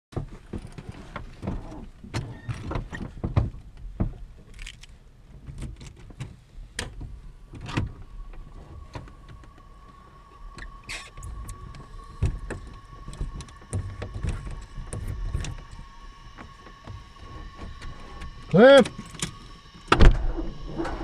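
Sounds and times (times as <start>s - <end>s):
thin steady tone: 7.2s - 21.0s.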